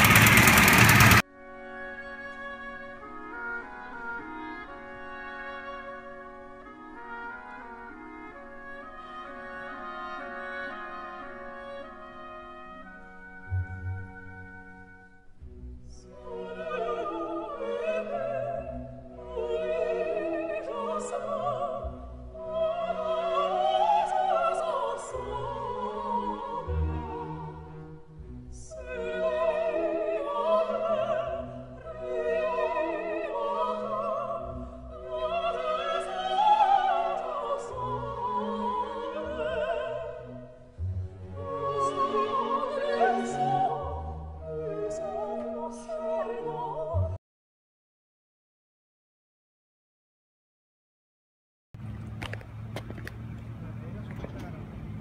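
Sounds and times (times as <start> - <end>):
operatic singing with orchestra: 0.0 - 1.2, 15.9 - 47.2.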